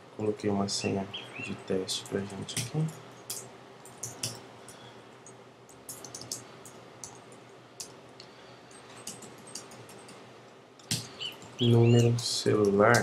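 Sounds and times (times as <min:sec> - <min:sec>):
keyboard typing: 0:02.0 - 0:04.4, 0:05.2 - 0:08.0, 0:08.7 - 0:10.2.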